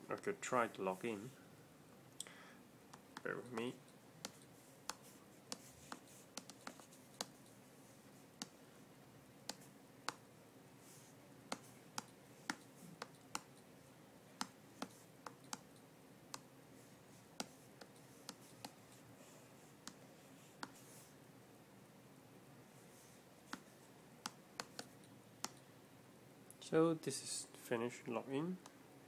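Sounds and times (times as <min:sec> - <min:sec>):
on-screen keyboard typing clicks: 0:14.4 - 0:15.8.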